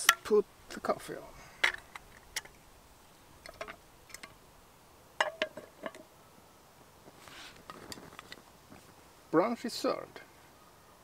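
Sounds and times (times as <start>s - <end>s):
soft rustling: 6.8s - 9.2s.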